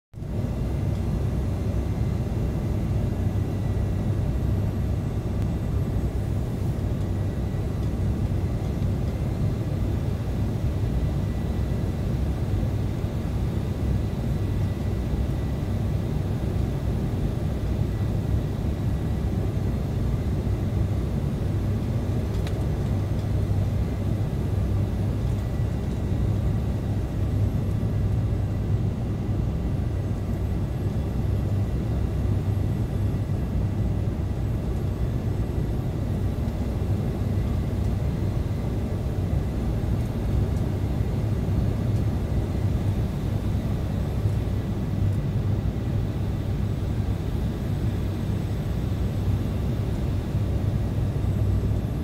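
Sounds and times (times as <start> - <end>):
airliner cabin rumble: 0.3 - 52.0.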